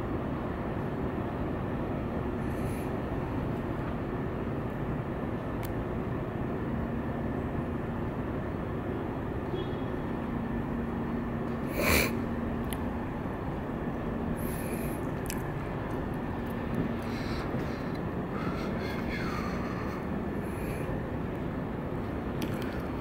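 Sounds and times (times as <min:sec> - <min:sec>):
city background rumble: 0:00.0 - 0:23.0
faint even hum: 0:06.2 - 0:23.0.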